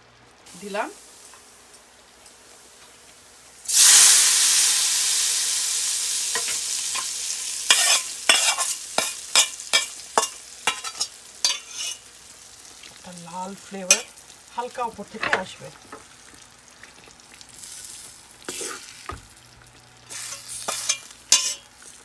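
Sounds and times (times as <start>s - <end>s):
hot oil sizzling: 0.0s - 22.0s
spatula knocking and scraping pans: 7.7s - 12.0s, 15.0s - 16.1s, 20.1s - 21.7s.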